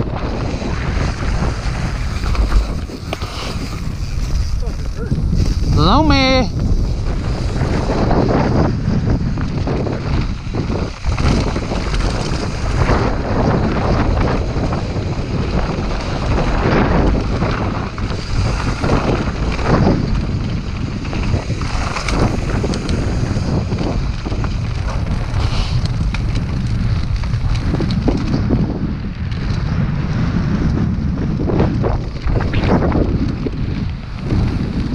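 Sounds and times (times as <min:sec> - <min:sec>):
wind buffeting microphone: 0:00.0 - 0:34.9
bike clicks and knocks: 0:07.6 - 0:29.7.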